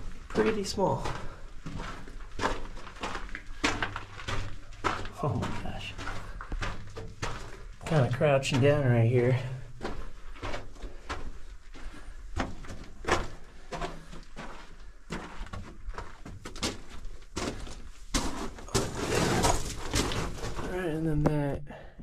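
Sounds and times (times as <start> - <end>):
footsteps crunching on gravel: 0.0 - 20.7
clothing and gear scraping: 18.2 - 20.6.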